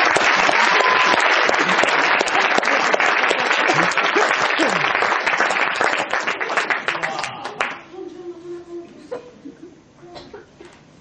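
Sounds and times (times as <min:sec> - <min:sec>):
audience applauding: 0:00.0 - 0:07.8.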